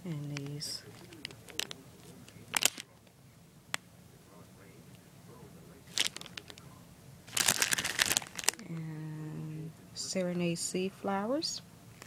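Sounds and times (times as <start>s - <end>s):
cellophane crinkling: 0.2s - 3.0s, 5.9s - 6.7s, 7.3s - 8.6s.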